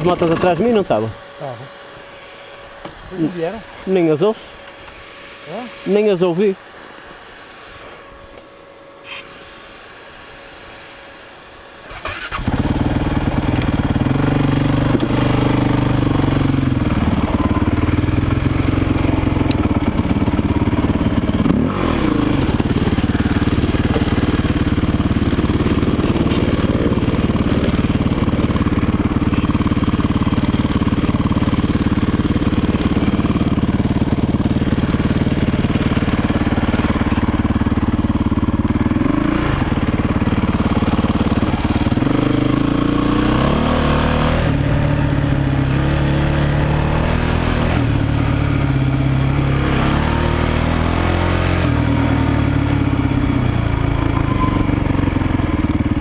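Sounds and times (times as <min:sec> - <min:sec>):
motorcycle engine revving: 0:11.9 - 0:56.0.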